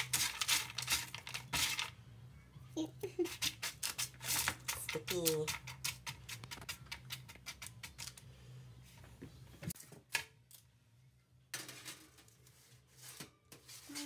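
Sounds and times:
parchment paper rustling: 0.0s - 1.9s, 11.7s - 14.0s
seeds rattling on metal baking pan: 0.0s - 1.9s, 3.2s - 8.2s.

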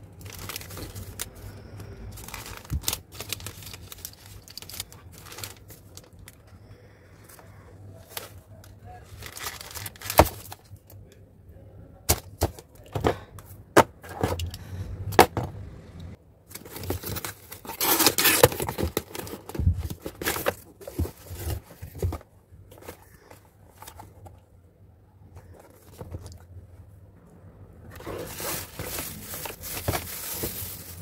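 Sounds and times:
packaging rustling and scraping: 0.1s - 6.5s, 7.2s - 10.8s, 16.5s - 24.4s, 25.3s - 26.4s, 27.9s - 31.0s.

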